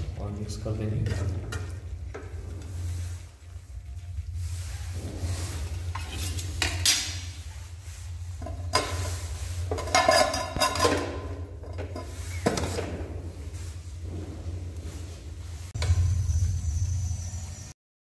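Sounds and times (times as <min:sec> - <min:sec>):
light sizzle: 0:00.0 - 0:17.8
low hum: 0:00.0 - 0:17.8
metal spatula scraping pan: 0:04.5 - 0:07.4, 0:08.0 - 0:14.9
metal plate clattering on pan: 0:08.4 - 0:12.8.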